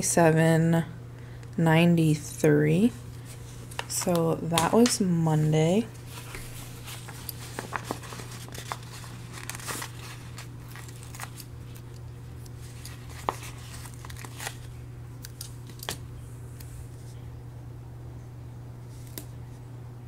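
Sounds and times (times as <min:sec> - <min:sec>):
steady low hum: 0:00.0 - 0:20.0
paper rustling: 0:03.2 - 0:16.0.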